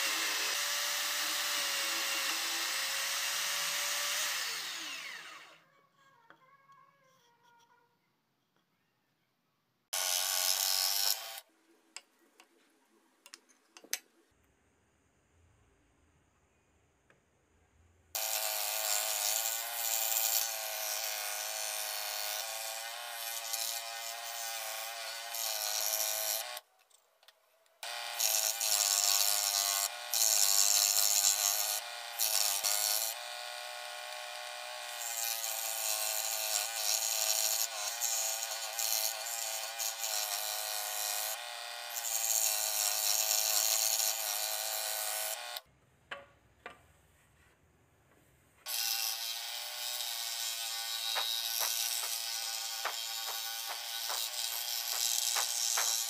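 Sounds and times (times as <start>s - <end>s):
scroll saw cutting plywood: 0.0s - 5.6s, 48.6s - 56.0s.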